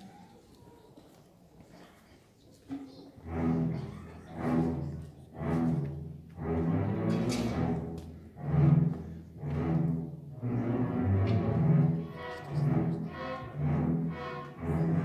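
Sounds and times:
string orchestra playing chords: 0:03.2 - 0:15.0.

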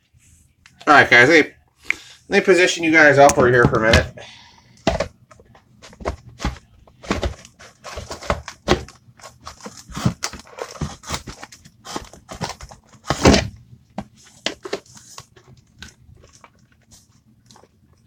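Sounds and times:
objects knocking and rustling: 0:04.8 - 0:18.0.

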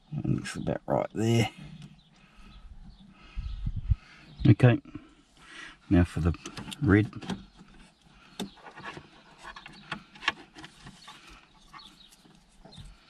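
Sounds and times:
faint rustling: 0:06.3 - 0:13.0.

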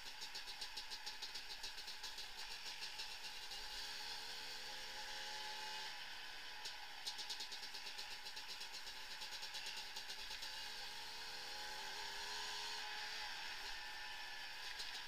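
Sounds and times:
fast regular ticking: 0:00.0 - 0:03.5, 0:07.0 - 0:10.4
vehicle engine running: 0:00.0 - 0:15.0.

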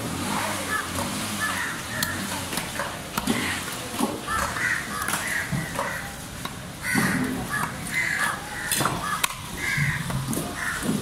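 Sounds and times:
crows cawing: 0:00.6 - 0:02.1, 0:04.2 - 0:06.2, 0:06.8 - 0:11.0.

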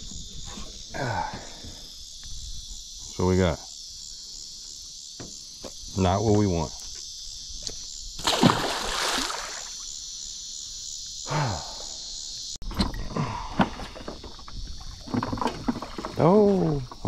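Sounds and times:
high drone of insects: 0:00.0 - 0:17.0
water dripping and sloshing: 0:08.2 - 0:09.7, 0:14.3 - 0:17.0
fish splashing into water: 0:08.2 - 0:09.8.

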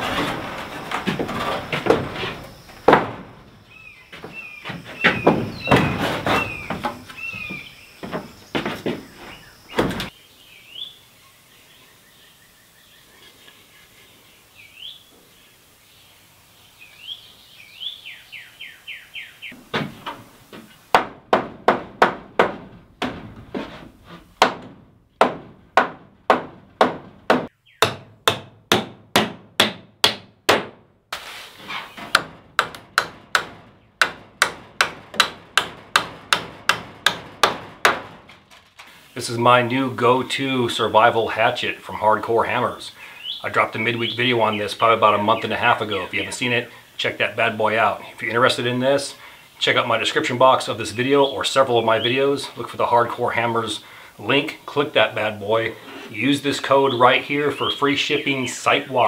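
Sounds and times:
birds chirping: 0:00.0 - 0:21.0, 0:27.3 - 0:28.0, 0:33.0 - 0:59.0
hatchet hammering nails into wood: 0:20.9 - 0:23.3, 0:24.4 - 0:30.8, 0:32.1 - 0:38.2.

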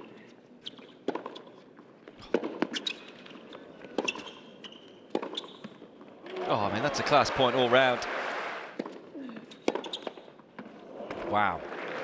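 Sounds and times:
shoe squeaks on court: 0:00.6 - 0:01.6, 0:02.6 - 0:05.8, 0:09.5 - 0:10.3
racquet striking tennis ball: 0:05.1 - 0:05.5, 0:09.6 - 0:10.3.

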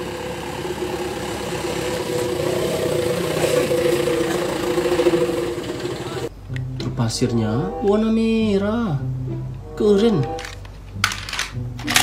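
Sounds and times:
diesel truck engine running: 0:00.0 - 0:06.3.

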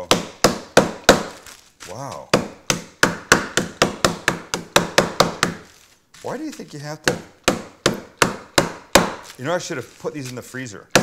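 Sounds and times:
blunt tool whacking on wood: 0:00.0 - 0:01.4, 0:02.1 - 0:05.7, 0:06.5 - 0:09.4.

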